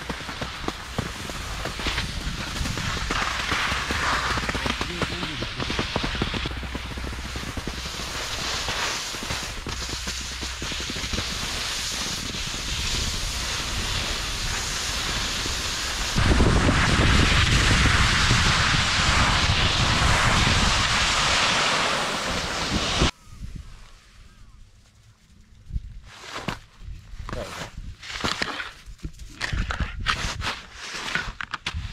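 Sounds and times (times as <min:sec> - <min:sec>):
skis sliding on snow: 0:00.0 - 0:23.1, 0:30.1 - 0:31.9
wind buffeting microphone: 0:00.6 - 0:21.5.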